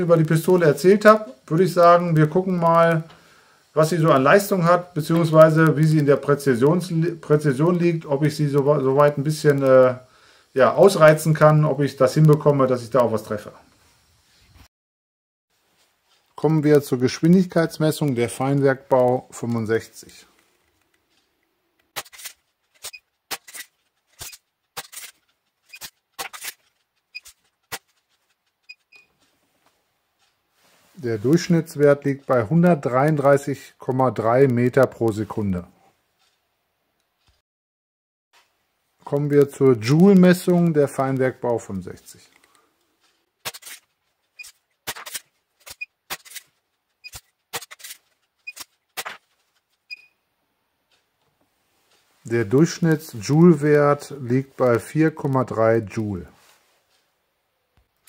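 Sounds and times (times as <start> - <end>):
air pistol rasping strokes: 42.3 - 49.5.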